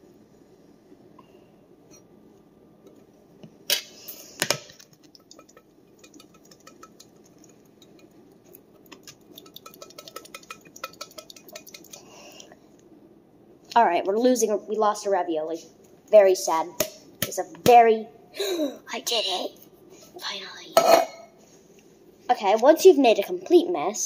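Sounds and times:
utensil knocking on tin can: 8.8s - 12.0s.

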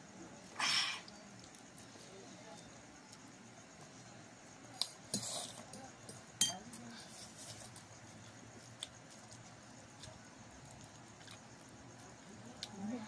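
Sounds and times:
utensil clinking against a bowl: 5.1s - 6.8s.

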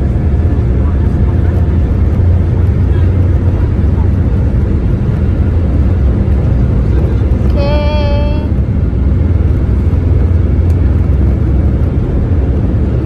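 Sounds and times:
jet engine and wheels rumble: 0.0s - 13.0s.

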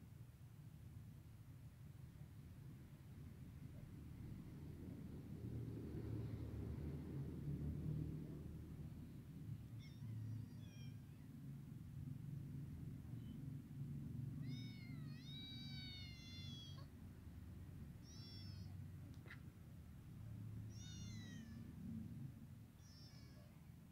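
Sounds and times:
low steady rumble: 0.0s - 23.9s
kittens mewing: 9.6s - 11.3s, 14.3s - 17.0s, 18.0s - 19.4s, 20.6s - 21.8s, 22.7s - 23.8s.

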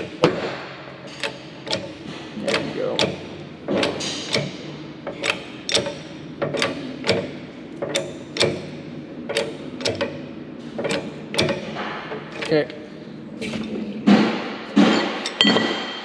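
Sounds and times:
sharp metallic clicks from press: 0.0s - 12.7s.

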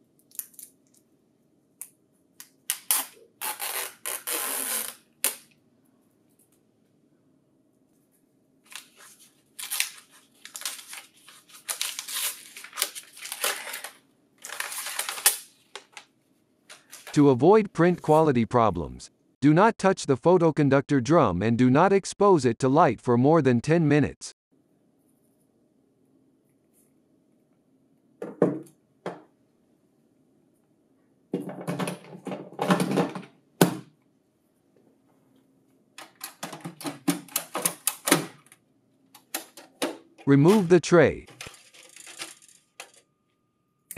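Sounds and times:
packing wrapper crinkling: 8.7s - 16.0s.

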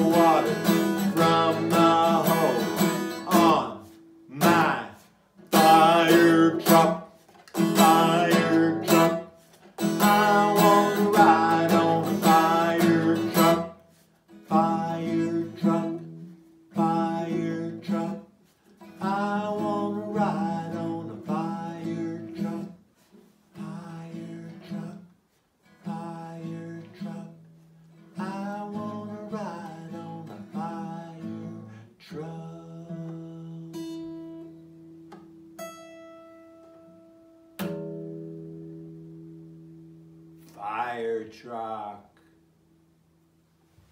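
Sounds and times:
man singing: 0.0s - 13.8s, 14.4s - 18.3s, 18.9s - 22.8s, 23.5s - 25.1s, 25.8s - 34.2s, 40.5s - 42.2s
acoustic guitar strumming: 0.0s - 43.1s.

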